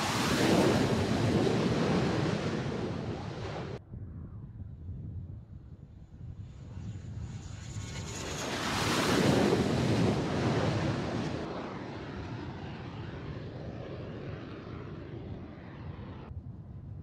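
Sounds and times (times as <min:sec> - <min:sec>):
jet engine at full power: 0:00.0 - 0:03.8, 0:06.2 - 0:16.4
wind buffeting microphone: 0:00.0 - 0:17.0.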